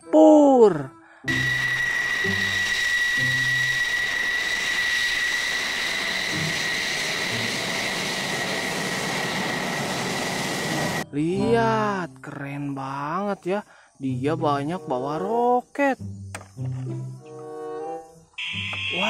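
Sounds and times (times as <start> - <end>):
jet engine whine: 1.3 - 11.0.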